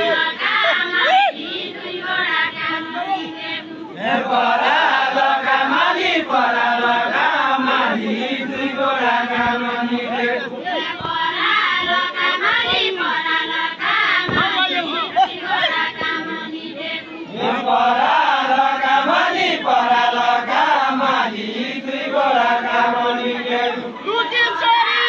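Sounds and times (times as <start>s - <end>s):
men singing folk song together: 4.0s - 12.0s, 17.3s - 24.0s.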